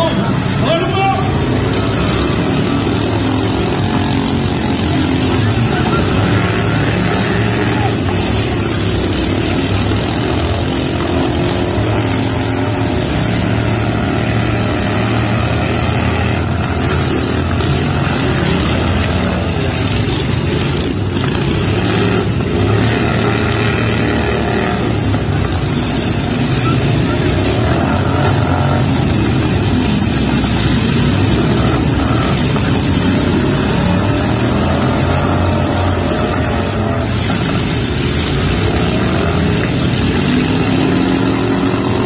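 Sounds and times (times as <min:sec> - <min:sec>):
lawn tractor engines droning: 0:00.0 - 0:42.0.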